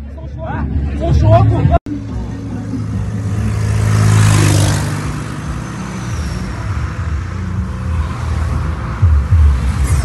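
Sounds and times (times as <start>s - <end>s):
car engine and road hum: 0.0s - 10.0s
car passing with tyre noise: 2.1s - 10.0s.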